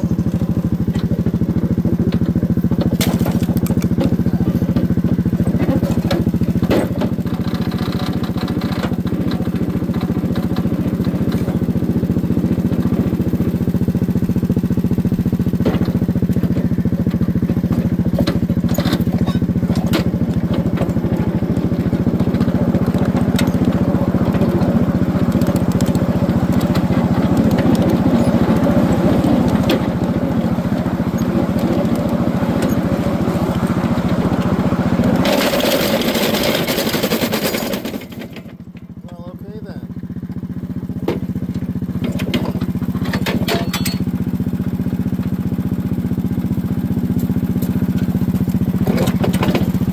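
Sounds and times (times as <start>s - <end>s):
small train engine running: 0.0s - 49.9s
wheel clicks and knocks: 2.1s - 38.9s.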